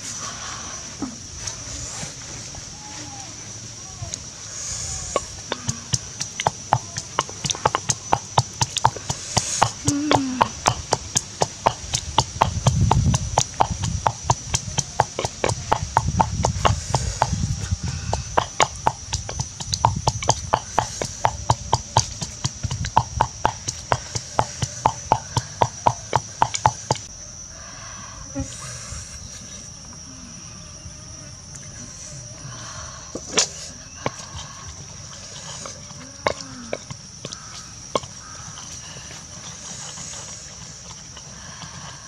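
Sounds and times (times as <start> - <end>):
wooden pestle pounding in mortar: 5.2 - 17.5, 18.1 - 27.1.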